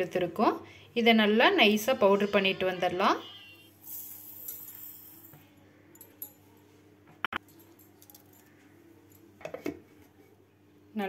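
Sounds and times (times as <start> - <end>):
sugar grains pouring into metal jar: 3.8 - 5.4.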